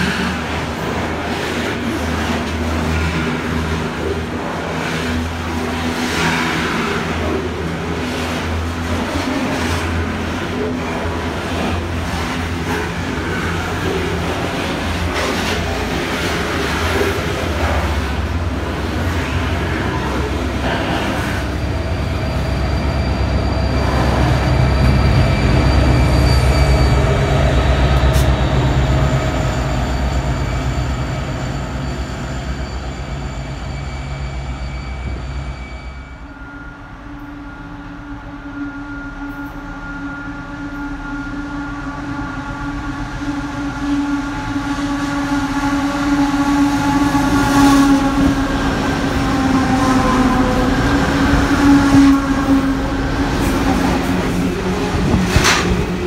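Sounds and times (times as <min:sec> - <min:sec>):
diesel locomotive engine drone: 0:00.0 - 0:56.0
train wagons rumbling past: 0:00.0 - 0:56.0
high wheel squeals: 0:21.4 - 0:41.8.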